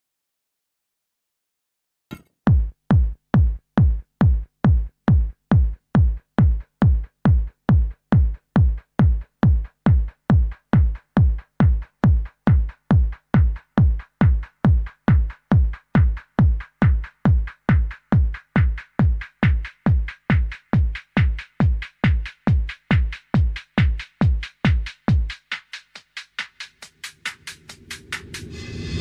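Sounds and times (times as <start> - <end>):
heavy kick drum: 2.5 - 25.4.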